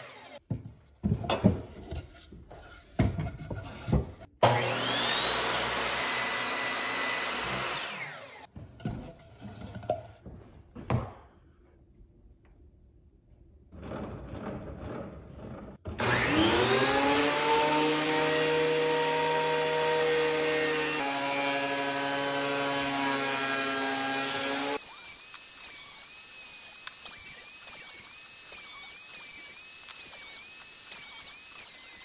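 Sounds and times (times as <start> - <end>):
thickness planer motor whining: 0.0 - 0.4, 4.4 - 8.5, 15.9 - 32.0.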